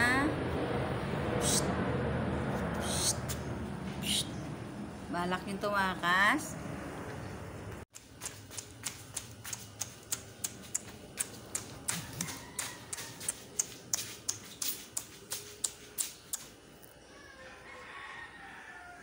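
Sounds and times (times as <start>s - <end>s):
footsteps on tiled floor: 7.7s - 16.6s.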